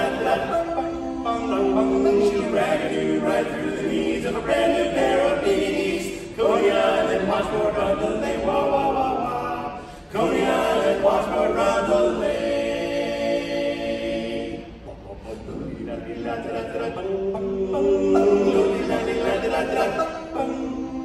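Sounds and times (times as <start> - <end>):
vocal group singing a cappella: 0.0 - 21.0.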